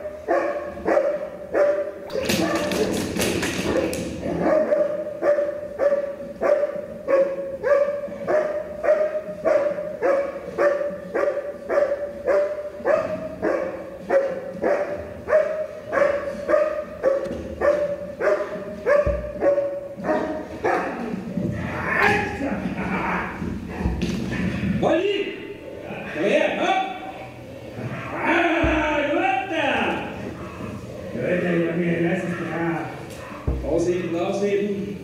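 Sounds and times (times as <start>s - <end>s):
dog barking aggressively: 0.0s - 3.0s, 3.7s - 21.2s.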